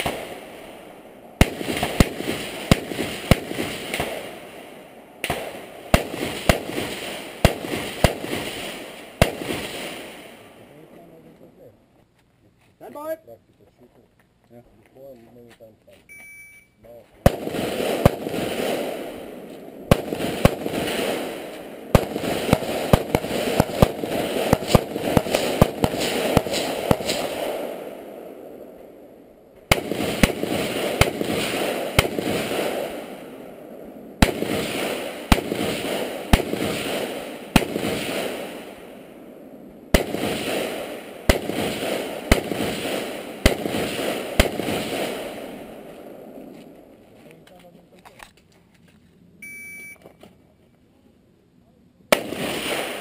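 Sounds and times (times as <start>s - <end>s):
rifle shots with echo: 0.0s - 10.8s, 17.2s - 46.5s, 52.1s - 53.0s.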